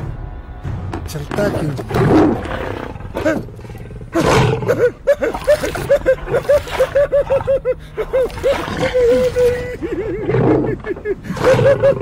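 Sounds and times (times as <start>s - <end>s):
lion growling: 1.8s - 12.0s.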